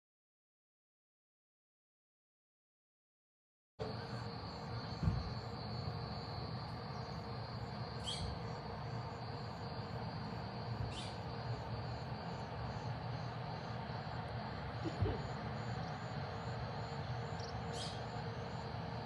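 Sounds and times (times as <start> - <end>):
insect chorus: 3.8 - 19.0.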